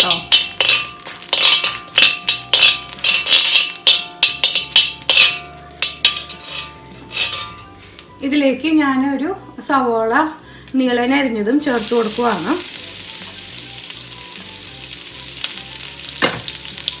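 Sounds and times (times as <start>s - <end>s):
metal spatula scraping a wok: 0.0s - 8.0s
spices frying in hot oil: 0.0s - 8.2s, 10.6s - 17.0s.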